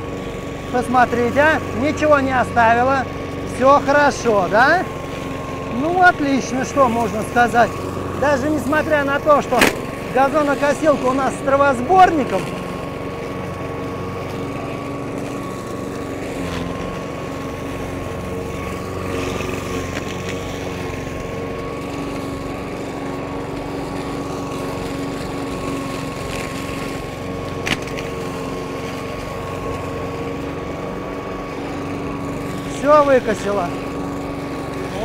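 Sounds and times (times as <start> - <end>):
lawn mower running: 0.0 - 35.0.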